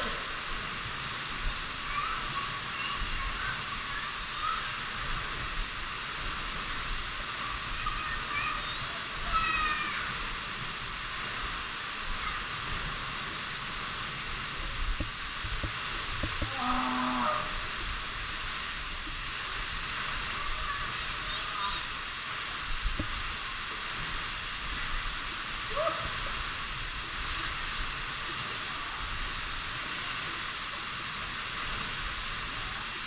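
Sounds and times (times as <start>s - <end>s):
waterfall rushing: 0.0s - 33.0s.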